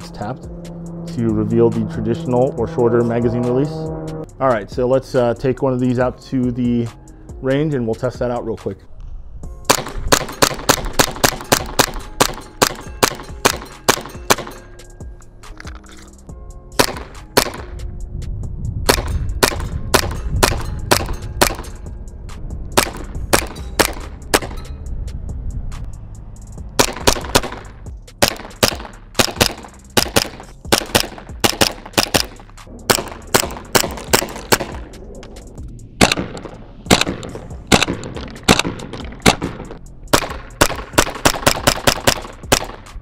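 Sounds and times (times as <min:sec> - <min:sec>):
airsoft pistol firing: 0:09.7 - 0:14.6, 0:16.8 - 0:17.8, 0:18.9 - 0:21.7, 0:22.8 - 0:24.6, 0:26.8 - 0:34.9, 0:36.0 - 0:43.0.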